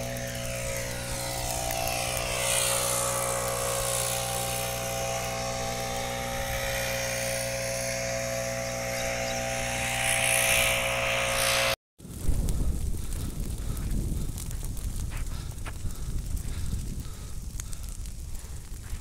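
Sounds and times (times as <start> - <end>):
droning hum of held tones: 0.0 - 11.8.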